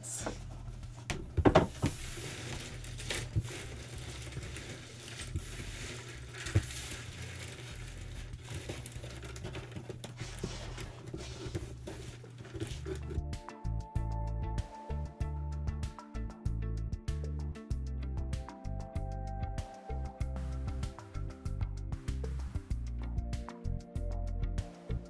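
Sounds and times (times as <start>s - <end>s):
puzzle pieces rustling on table: 1.6s - 13.2s
background music: 2.7s - 25.0s.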